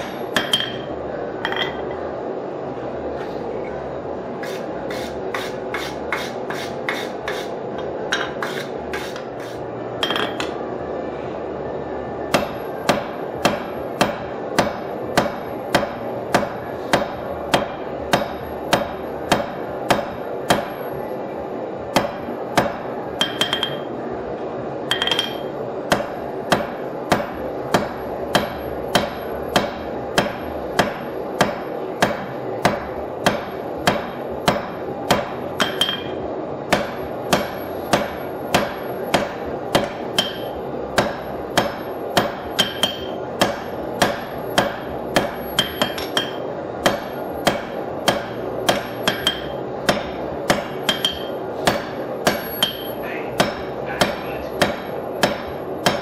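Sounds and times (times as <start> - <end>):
hammer striking steel on anvil: 0.0 - 1.9, 12.3 - 20.8, 21.9 - 23.9, 24.9 - 56.0.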